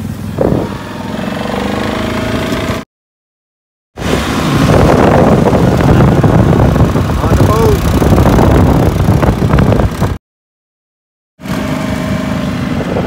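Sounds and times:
atv engine running: 0:04.0 - 0:10.2, 0:11.4 - 0:13.0.

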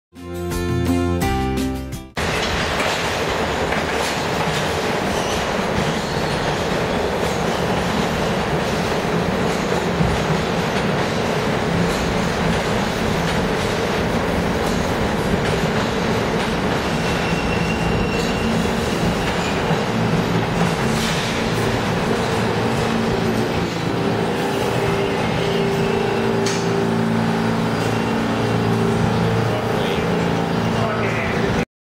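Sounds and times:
train wheels on rails: 0:02.2 - 0:31.6
brief high squeal: 0:17.0 - 0:18.6.

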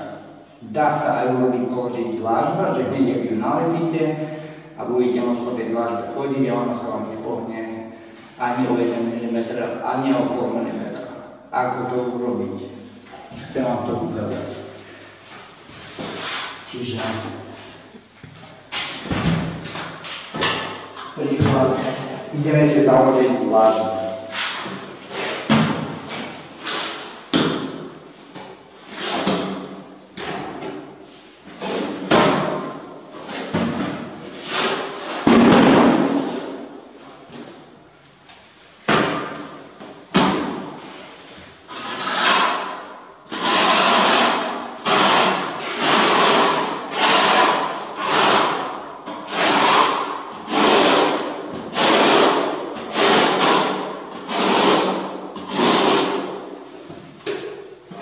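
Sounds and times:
trowel scraping bucket: 0:13.1 - 0:18.0, 0:23.3 - 0:27.3, 0:28.3 - 0:30.8, 0:40.9 - 0:58.0.

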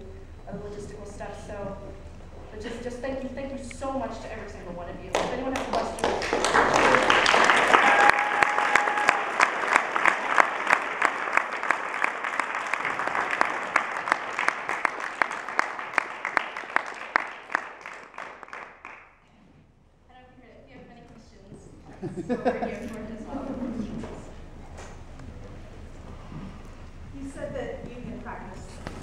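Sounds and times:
audience applauding: 0:05.1 - 0:19.1.

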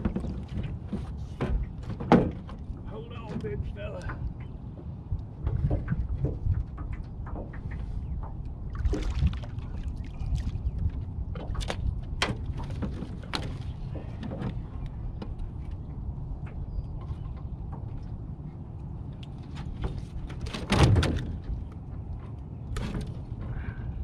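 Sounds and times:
sharp knocks against boat: 0:00.0 - 0:09.5, 0:11.3 - 0:15.4, 0:19.5 - 0:22.0
water splashing and dripping: 0:00.0 - 0:14.5
steady low rumble: 0:02.6 - 0:20.4.

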